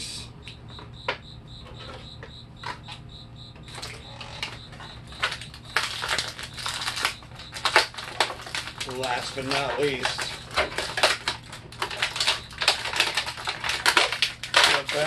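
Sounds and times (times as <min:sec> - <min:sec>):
plastic bag crinkling: 0:03.7 - 0:15.0.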